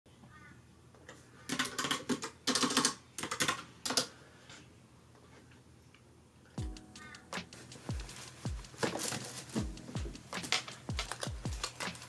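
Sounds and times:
computer keyboard typing: 1.5s - 4.1s, 7.8s - 12.0s.

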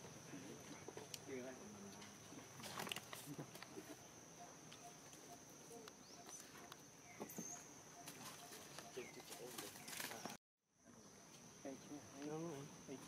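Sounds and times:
monkeys scuffling on concrete: 4.7s - 10.4s.

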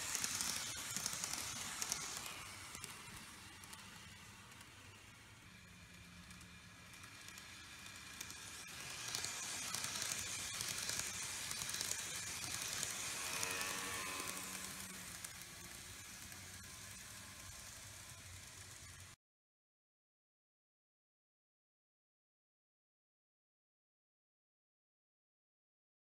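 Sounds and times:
faint motor whine: 0.0s - 19.2s
model train wheels rattling: 0.0s - 19.2s.

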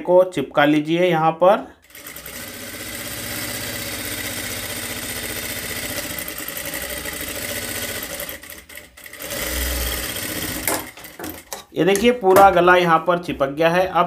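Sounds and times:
sewing machine running: 1.8s - 11.6s.

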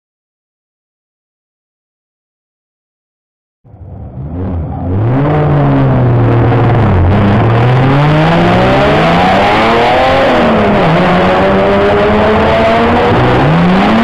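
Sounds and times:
race car engines passing: 3.7s - 14.0s.

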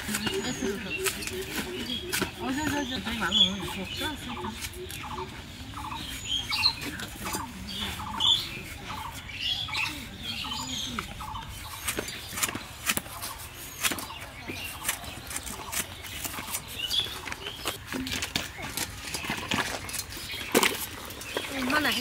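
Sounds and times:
birds calling: 0.0s - 22.0s
blade cutting bananas: 11.7s - 18.8s.

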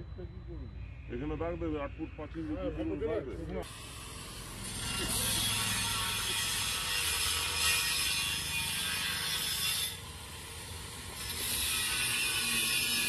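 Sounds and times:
angle grinder cutting steel: 3.6s - 13.0s.

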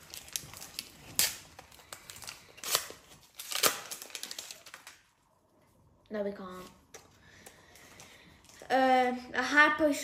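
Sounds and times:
card pack wrapper ripping: 0.0s - 5.1s.

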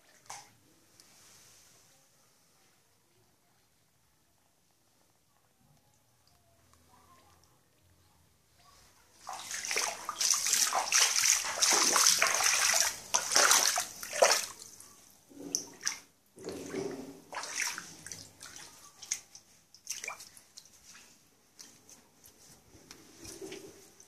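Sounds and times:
water splashing on tiled floor: 0.0s - 0.6s, 9.1s - 22.0s.

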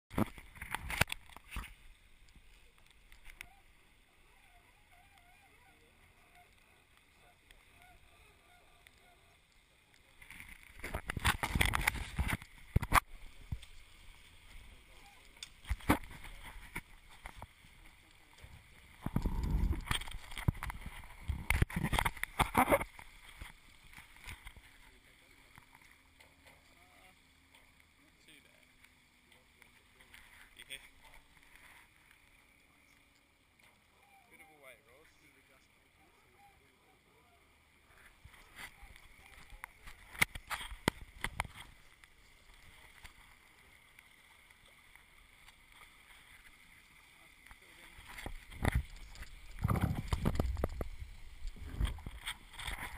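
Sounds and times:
water rushing: 0.1s - 52.9s
wind: 0.1s - 52.9s
wind rumbling: 19.0s - 22.0s.

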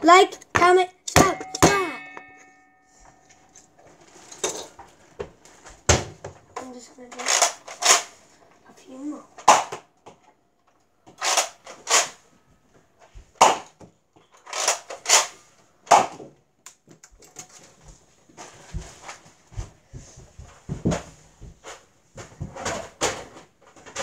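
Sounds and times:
handling knocks and thumps: 0.5s - 3.2s, 15.9s - 24.0s.

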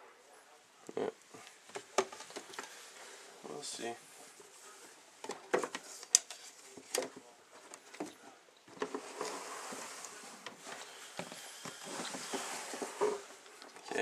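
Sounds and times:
plastic clicks and knocks: 1.7s - 2.7s
rustling slide: 8.8s - 13.5s.

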